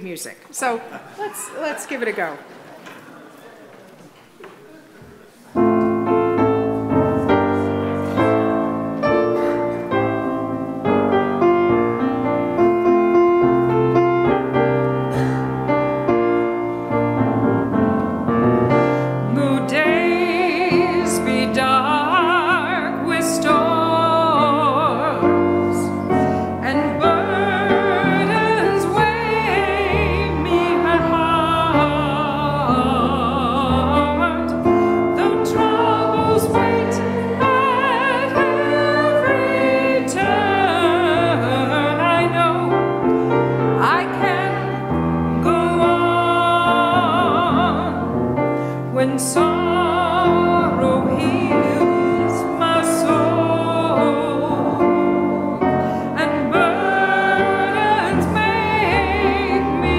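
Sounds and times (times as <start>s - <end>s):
piano playing: 5.5s - 59.9s
voices singing a hymn: 17.6s - 48.2s, 48.8s - 59.9s.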